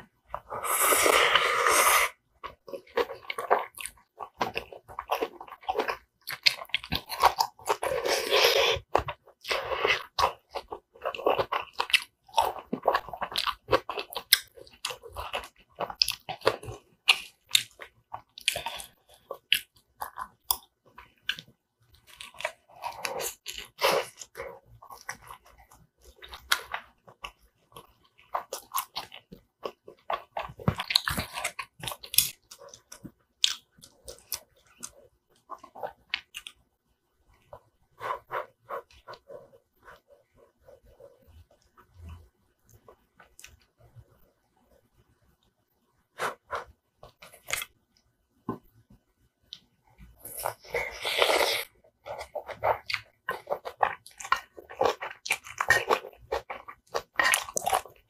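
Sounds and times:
wet chewing and biting: 0:02.4 - 0:36.6, 0:49.5 - 0:58.0.

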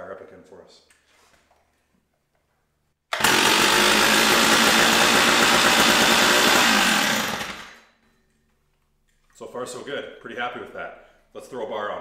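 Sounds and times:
chainsaw engine starting and running: 0:03.1 - 0:07.9.

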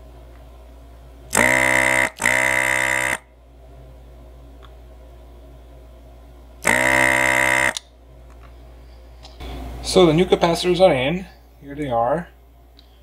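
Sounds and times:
desoldering pump buzzing: 0:01.3 - 0:03.3, 0:06.6 - 0:07.9.

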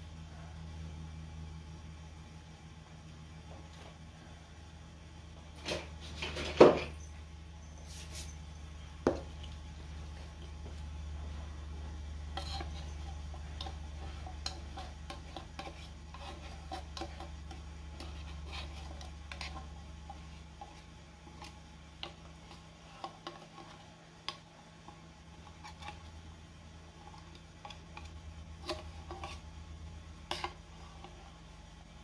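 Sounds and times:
steady low hum: 0:00.0 - 0:32.0
metal spoon scraping tin can: 0:12.4 - 0:17.3.

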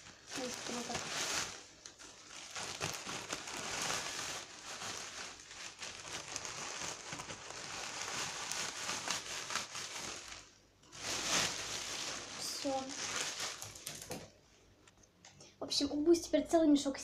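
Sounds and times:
plastic bag crinkling: 0:00.0 - 0:14.3
dry hay rustling: 0:00.4 - 0:01.6, 0:11.0 - 0:13.7.

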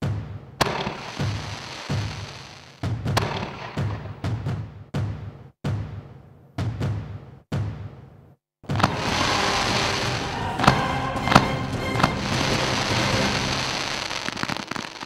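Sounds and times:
sharp cracks: 0:08.7 - 0:09.5
stage fountains hissing: 0:08.8 - 0:14.5
music with held tones: 0:08.9 - 0:14.3.

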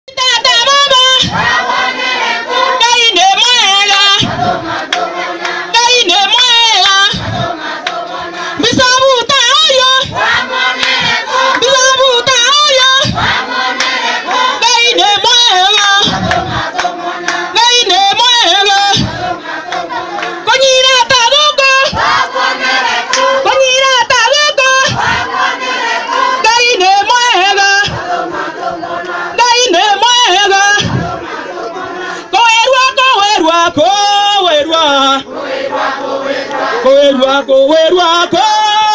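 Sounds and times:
woman singing into microphone: 0:00.1 - 0:01.6, 0:02.4 - 0:04.8, 0:05.6 - 0:13.5, 0:14.2 - 0:19.4, 0:20.1 - 0:22.3, 0:23.1 - 0:25.4, 0:26.2 - 0:28.2, 0:29.3 - 0:31.3, 0:32.2 - 0:35.3, 0:36.8 - 0:38.9
group singing along: 0:00.2 - 0:38.9
low thud: 0:04.2 - 0:04.7, 0:16.0 - 0:16.8, 0:19.0 - 0:19.4, 0:30.8 - 0:31.2.

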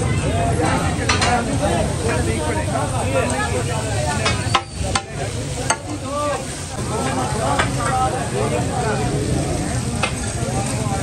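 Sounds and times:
chicken sizzling in oil: 0:00.5 - 0:11.0
cooking tools knocking on griddle: 0:00.7 - 0:01.6, 0:04.1 - 0:06.0.

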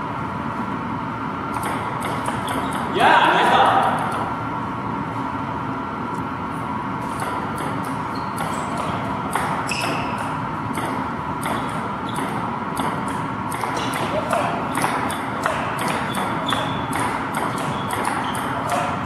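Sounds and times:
steady background noise: 0:00.0 - 0:19.0
ping pong ball clicking: 0:01.6 - 0:02.9, 0:07.2 - 0:18.9.

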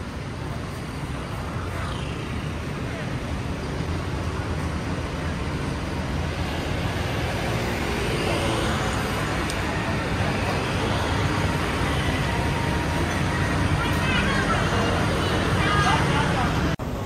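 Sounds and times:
cars and scooters passing: 0:00.0 - 0:17.0.

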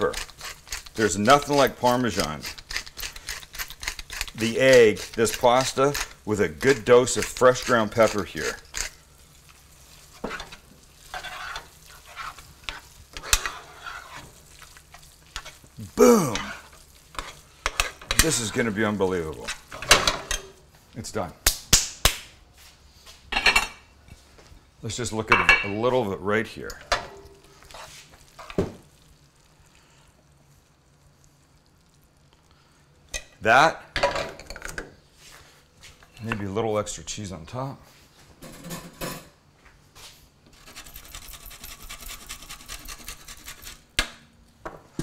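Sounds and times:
metal spoon scraping a pan: 0:00.0 - 0:09.1, 0:09.9 - 0:15.7, 0:16.4 - 0:20.6, 0:27.0 - 0:28.6
faint sizzle: 0:04.4 - 0:19.8, 0:26.0 - 0:33.9.

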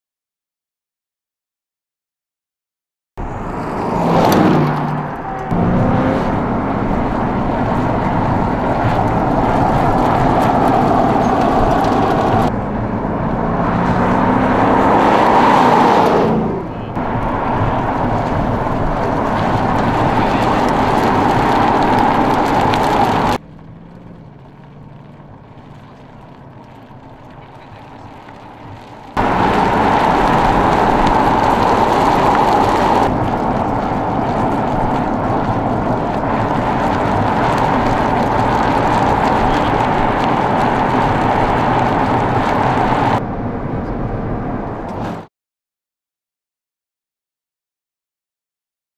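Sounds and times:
car engine running: 0:03.2 - 0:15.3, 0:16.4 - 0:45.2
car passing by: 0:03.2 - 0:23.4, 0:24.6 - 0:45.3.

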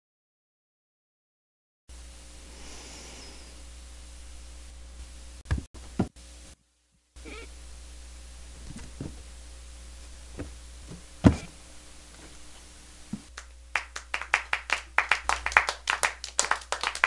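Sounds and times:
isolated knocks: 0:08.6 - 0:09.2, 0:10.4 - 0:11.5
small group clapping: 0:13.3 - 0:17.0.

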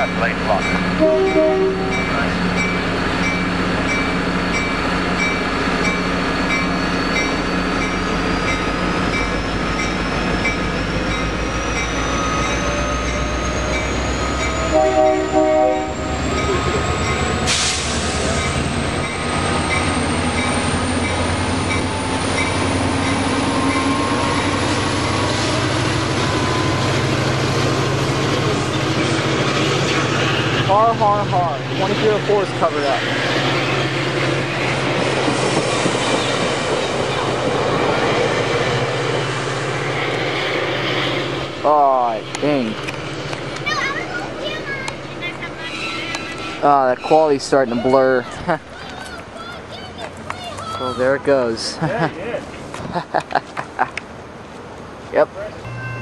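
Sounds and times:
diesel locomotive engine: 0:00.0 - 0:56.0
rail cars rolling past: 0:00.0 - 0:56.0
multi-note train horn: 0:01.0 - 0:02.0, 0:14.7 - 0:16.1.

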